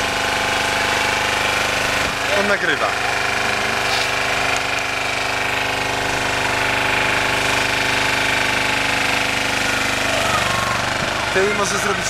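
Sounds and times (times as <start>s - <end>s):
water pump and engine running: 0.0s - 12.0s
hose jet hissing: 3.2s - 4.4s.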